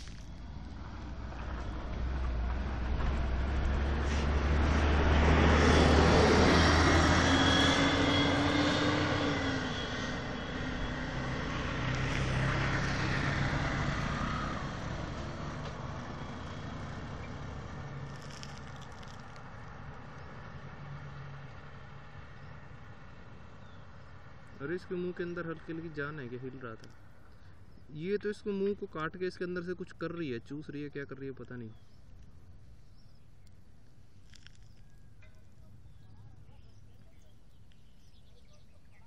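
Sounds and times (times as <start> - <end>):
vehicle engine driving past: 0.0 - 28.5.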